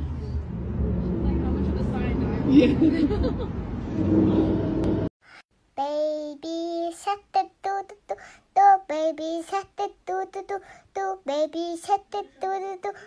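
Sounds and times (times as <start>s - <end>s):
high childlike voice singing: 5.8s - 13.0s.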